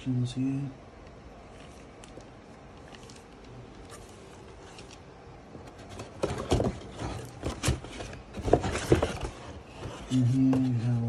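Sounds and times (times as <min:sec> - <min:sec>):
cardboard box scraping and knocking: 0:05.6 - 0:11.0.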